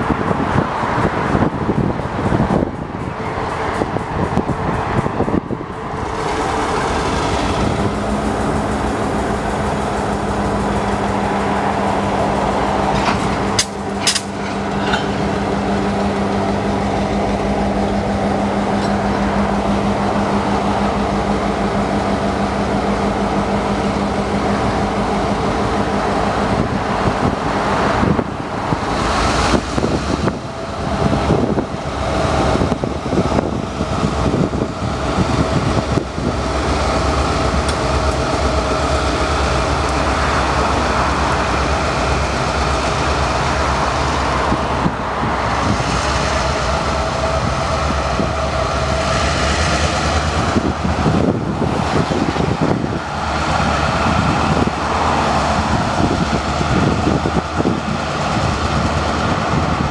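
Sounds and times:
diesel locomotive engines humming: 0.0s - 59.9s
sharp metallic clanks: 12.9s - 15.5s.

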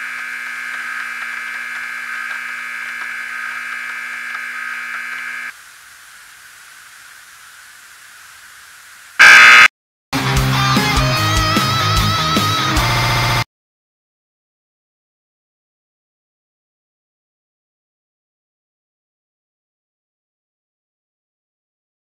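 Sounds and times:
electric buzzing drone: 0.0s - 5.5s, 9.2s - 9.7s
loud burst of static: 0.0s - 5.5s, 9.2s - 9.7s
faint hiss: 4.9s - 9.2s
theme music with electric guitar: 10.2s - 13.4s.

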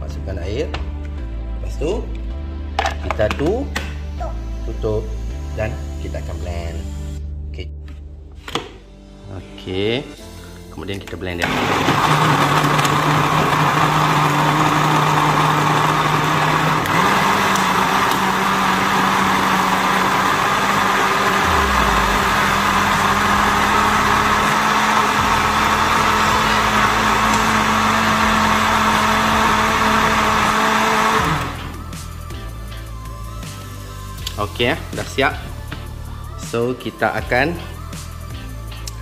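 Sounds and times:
electric blender running: 11.4s - 31.8s.

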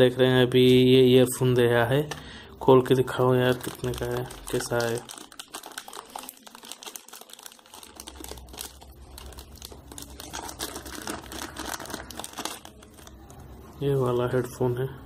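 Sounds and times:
plastic packaging crinkling: 2.1s - 13.8s.

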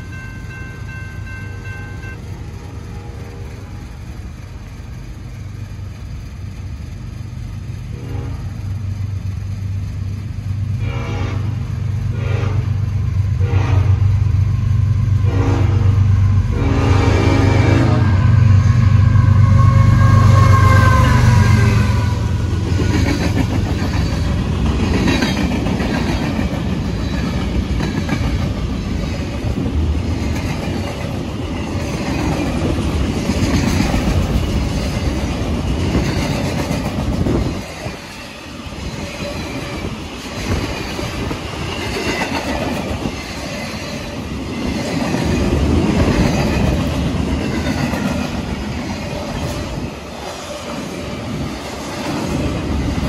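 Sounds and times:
train wheels clacking over rail joints: 22.6s - 53.0s.

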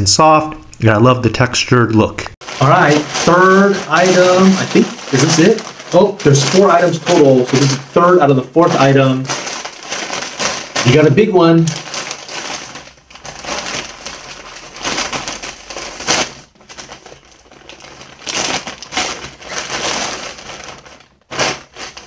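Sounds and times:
plastic bag crinkling: 2.4s - 22.0s.

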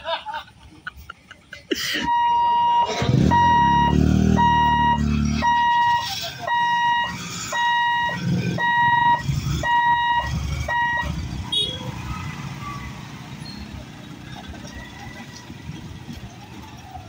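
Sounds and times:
electronic warning beeps: 2.0s - 11.7s
motorcycle engines revving: 2.1s - 17.0s.

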